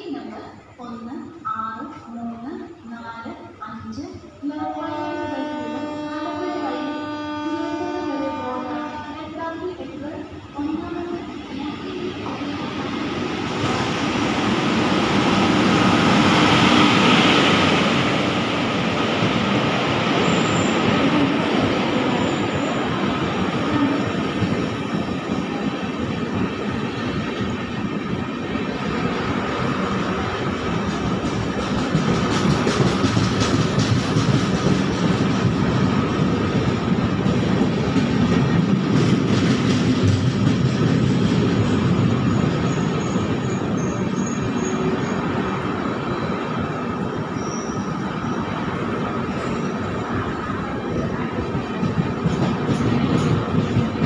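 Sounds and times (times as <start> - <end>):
train wheels running on rails: 0.2 - 54.0
high wheel squeals: 47.3 - 48.5.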